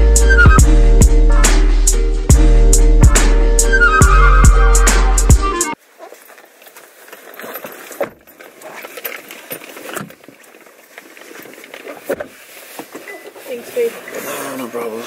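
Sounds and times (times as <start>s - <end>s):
faint rustling and handling: 5.8s - 15.0s.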